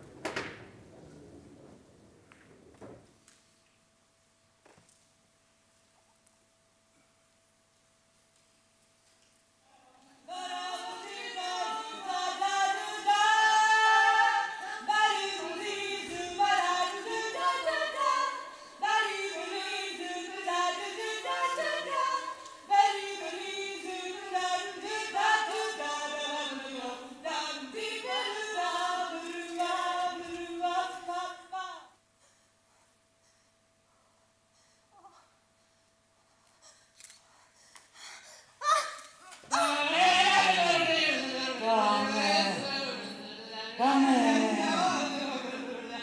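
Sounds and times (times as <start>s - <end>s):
women singing in harmony: 10.2s - 31.9s, 39.5s - 46.0s.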